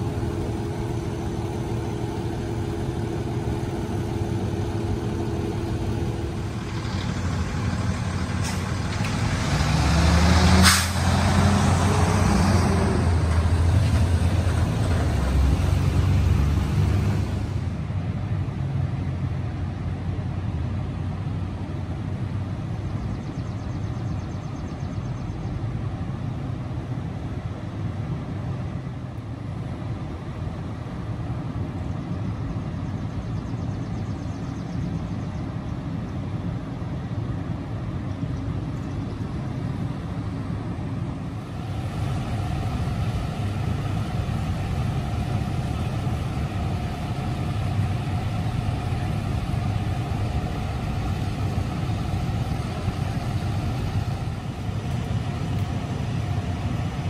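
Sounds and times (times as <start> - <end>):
steady higher hum: 0.0 - 9.0, 25.6 - 57.0
diesel engines idling: 0.0 - 57.0.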